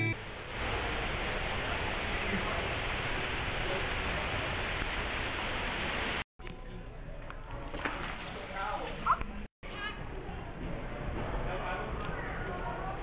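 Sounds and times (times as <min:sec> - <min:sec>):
water splashing: 0:00.2 - 0:06.2, 0:07.6 - 0:09.5.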